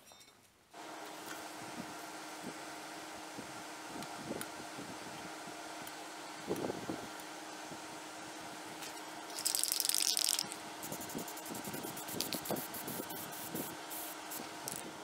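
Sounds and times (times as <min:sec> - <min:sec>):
spray paint can hissing: 0:09.3 - 0:14.9.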